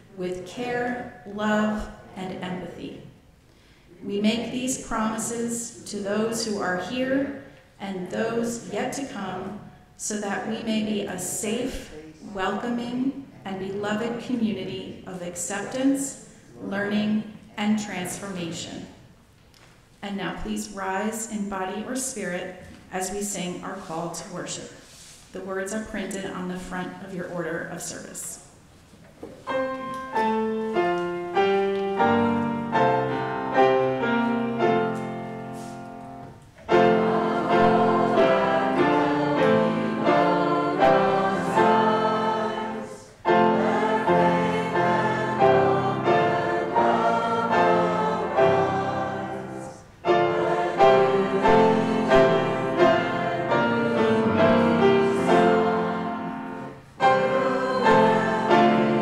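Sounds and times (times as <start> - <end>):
grand piano: 26.6 - 59.0
congregation singing a hymn: 29.6 - 59.0.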